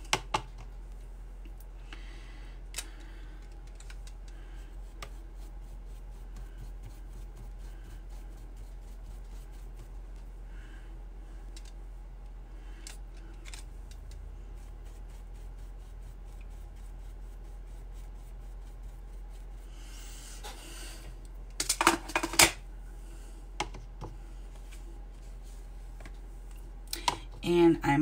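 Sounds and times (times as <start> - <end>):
brush on watercolor paper: 4.4 - 10.3, 14.4 - 20.2.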